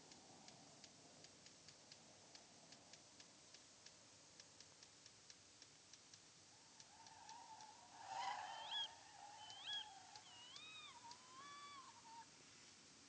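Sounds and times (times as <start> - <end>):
faint ticking: 0.0 - 8.0, 8.9 - 12.3
low background hiss: 0.0 - 13.0.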